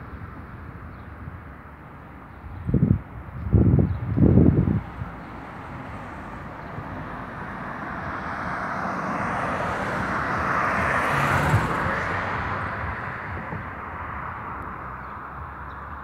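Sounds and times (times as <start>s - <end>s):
car passing tyre noise: 4.2s - 15.7s.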